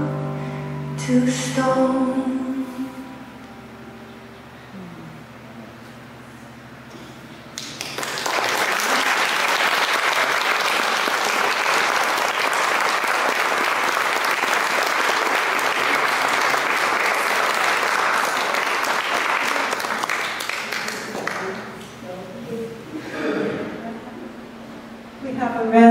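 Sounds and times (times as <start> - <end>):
audience applause: 7.6 - 21.8.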